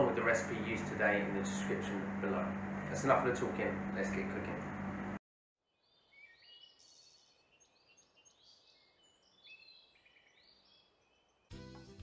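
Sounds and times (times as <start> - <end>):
faint birdsong chirps: 5.7 - 11.6.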